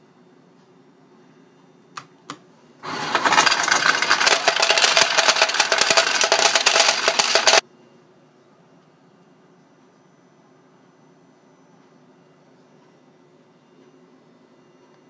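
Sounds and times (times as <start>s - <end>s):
coins clattering out of hopper: 2.8s - 7.6s.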